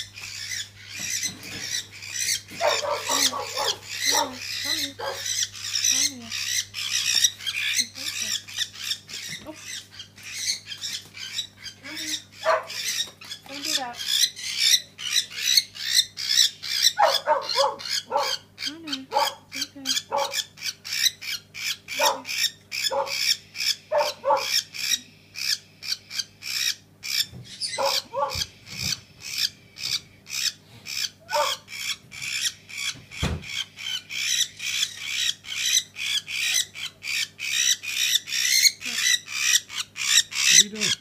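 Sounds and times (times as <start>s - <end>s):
cockatiel screeching: 0.0s - 41.0s.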